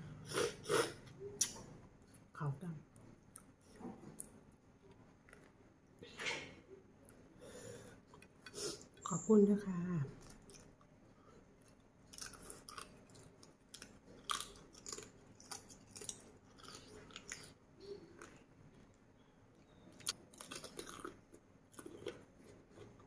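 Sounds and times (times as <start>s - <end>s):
close chewing with crunches: 11.6s - 18.8s, 19.7s - 23.0s.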